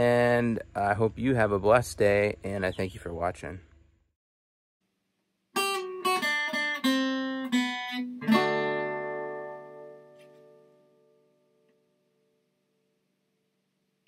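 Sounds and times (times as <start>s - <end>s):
acoustic guitar plucked and strummed: 5.6s - 11.7s.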